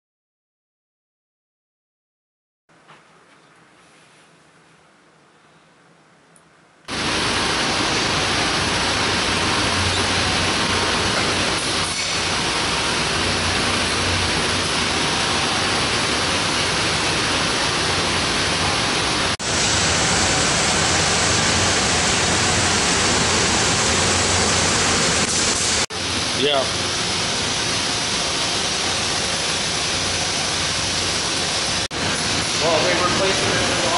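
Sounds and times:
loud steady rushing noise: 6.9 - 33.9.

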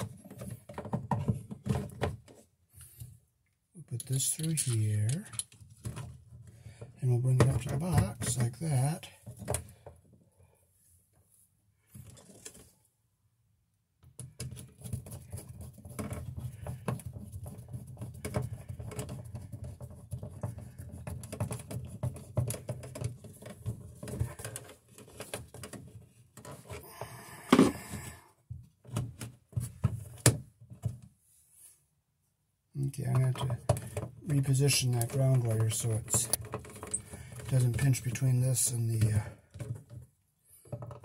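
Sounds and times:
clicks and taps of handling: 4.0 - 6.2.

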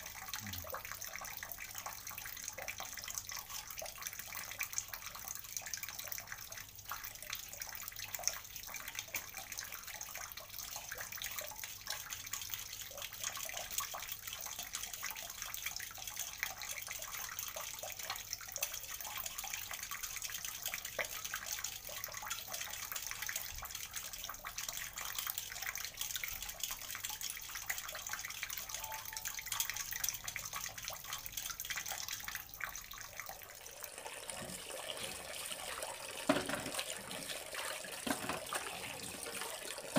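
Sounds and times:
rush like running water: 33.6 - 39.9.

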